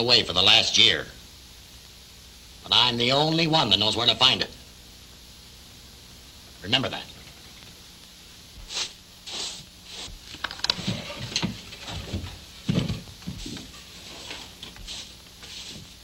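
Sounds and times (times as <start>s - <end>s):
knocks and scrapes: 10.0s - 16.0s
footsteps on wooden floor: 10.8s - 16.0s.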